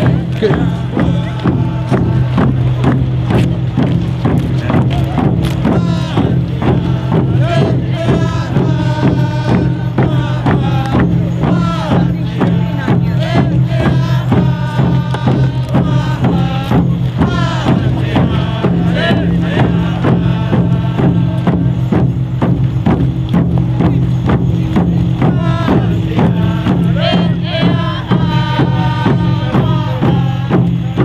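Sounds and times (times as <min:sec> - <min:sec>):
group singing: 0:00.0 - 0:03.0, 0:04.6 - 0:22.6, 0:24.8 - 0:31.0
steady drumbeat: 0:00.0 - 0:31.0.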